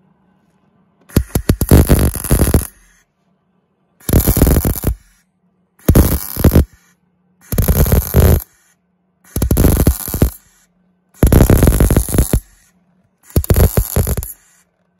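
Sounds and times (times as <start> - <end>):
faint steady hum: 0.0 - 14.9
welder crackling bursts: 1.1 - 3.0, 4.0 - 5.2, 5.8 - 8.6, 9.3 - 10.6, 11.2 - 12.7, 13.3 - 14.6.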